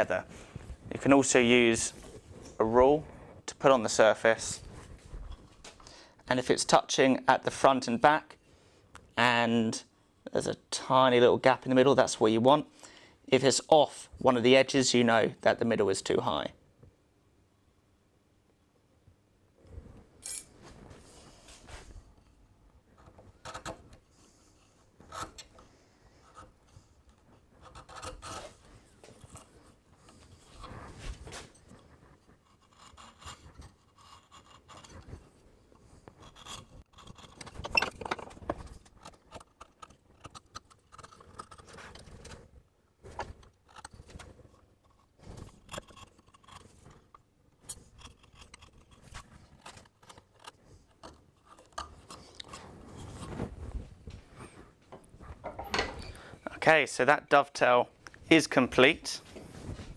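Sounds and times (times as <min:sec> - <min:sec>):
chisel scraping wood: 0:22.9 - 0:53.3.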